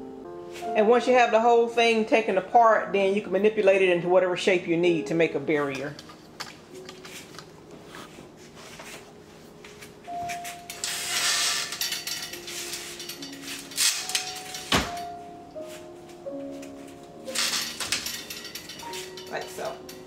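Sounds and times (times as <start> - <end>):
play pen panels rattling and scraping: 5.7 - 7.6.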